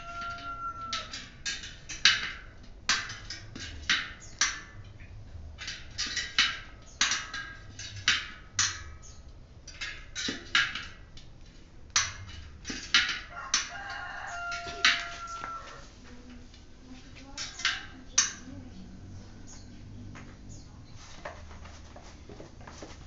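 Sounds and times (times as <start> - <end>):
bicycle tyre snapping on rim: 0.2 - 13.8.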